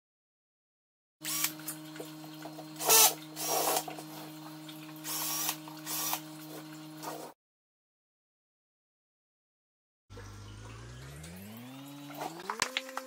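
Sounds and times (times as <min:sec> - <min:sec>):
drill bit boring into rock: 0:01.2 - 0:01.6, 0:02.8 - 0:03.9, 0:05.0 - 0:06.2
power drill motor hum: 0:01.2 - 0:07.3, 0:10.1 - 0:13.0.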